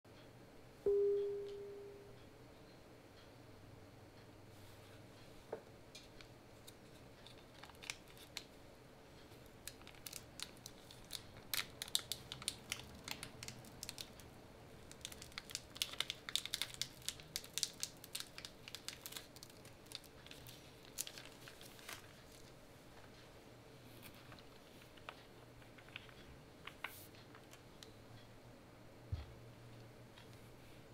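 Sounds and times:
plastic film crinkling: 6.6 - 8.5, 9.6 - 23.2.

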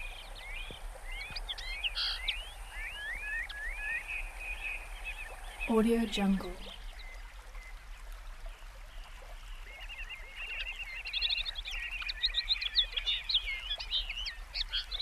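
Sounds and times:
birds chirping: 0.0 - 7.8
faint background hiss: 0.0 - 15.0.

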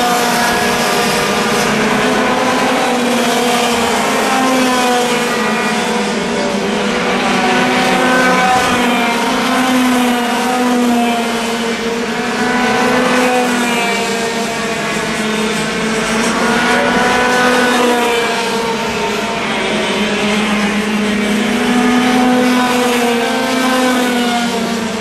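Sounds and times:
racing kart engines at high revs: 0.0 - 25.0.

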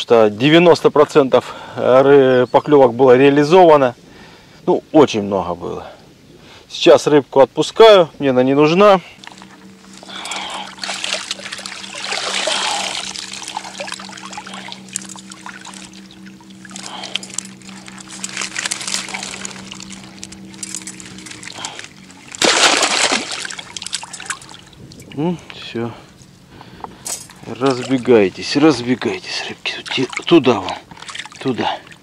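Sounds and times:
faint steady hum: 0.0 - 32.0
water splashing and trickling: 8.8 - 25.8, 27.0 - 32.0.

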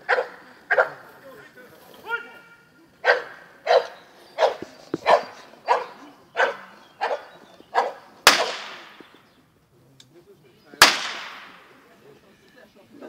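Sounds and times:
dog barking: 0.0 - 1.0, 3.0 - 8.1
blank pistol shot: 8.2 - 9.2, 10.8 - 11.8.

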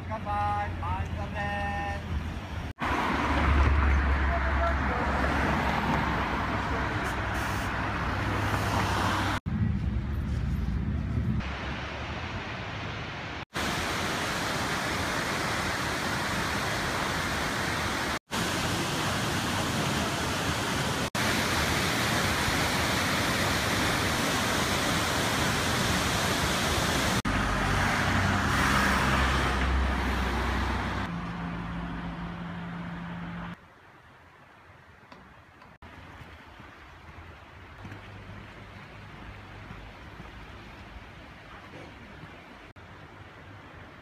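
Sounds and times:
street traffic rumble: 0.0 - 44.0
low engine hum: 8.0 - 11.6
waterfall roaring: 11.4 - 31.1.

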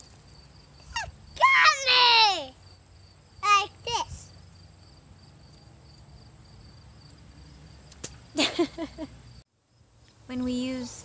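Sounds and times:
crickets chirping: 0.0 - 11.0
child exclaiming: 0.9 - 2.6, 3.4 - 4.3.

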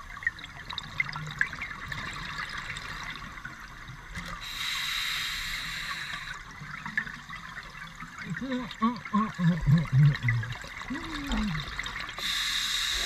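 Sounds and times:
underwater regulator exhaust bubbles: 8.2 - 13.0.

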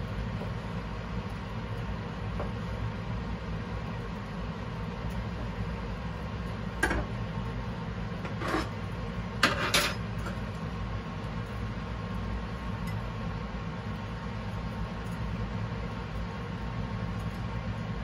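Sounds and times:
steady low hum: 0.0 - 18.0
plate and tongs clinking on counter: 9.4 - 10.0.

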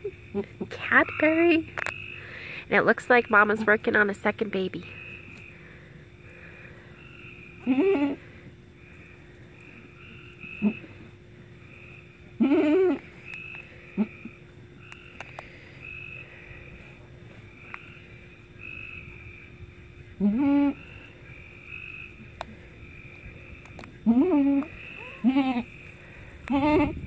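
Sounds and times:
goats bleating: 12.4 - 13.0, 24.0 - 25.7.

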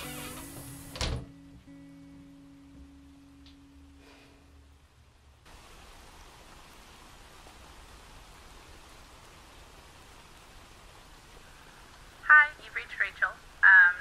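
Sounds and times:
rain hissing on wet street: 0.0 - 1.0, 4.8 - 14.0.

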